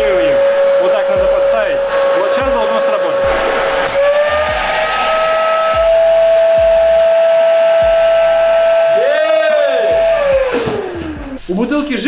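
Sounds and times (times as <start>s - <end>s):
vacuum cleaner whistling whine: 0.0s - 11.7s.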